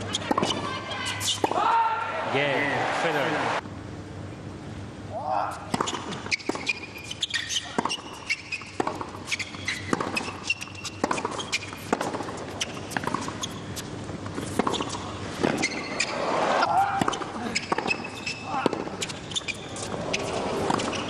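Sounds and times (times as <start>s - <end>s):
shoes squeaking on court: 0.0s - 1.6s, 5.5s - 21.0s
ball bounces: 0.1s - 0.8s, 7.6s - 13.5s.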